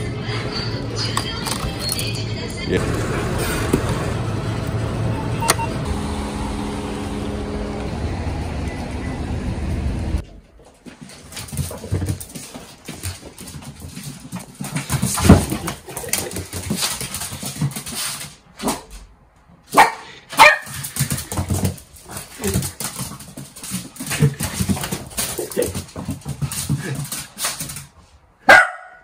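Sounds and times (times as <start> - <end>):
dog barking excitedly: 19.7 - 21.4, 28.4 - 29.0.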